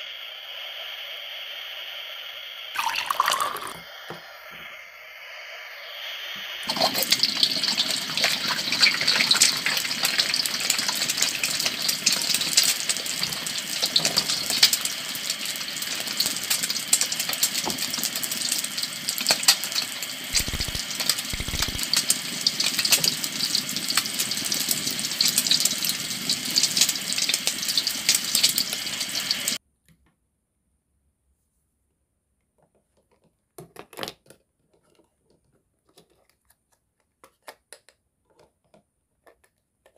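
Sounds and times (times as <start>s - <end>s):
oil crackling and hissing in a pan: 0.0s - 29.6s.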